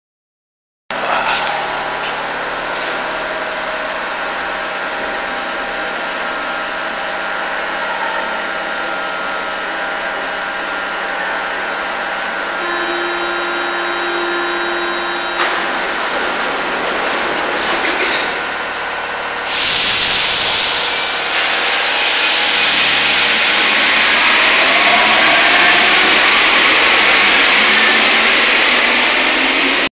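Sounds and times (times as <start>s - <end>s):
train electrical hum: 0.9s - 29.9s
train motor whine: 11.2s - 16.7s, 17.8s - 29.9s
door warning tone: 12.6s - 15.7s
loud hiss: 19.4s - 29.9s.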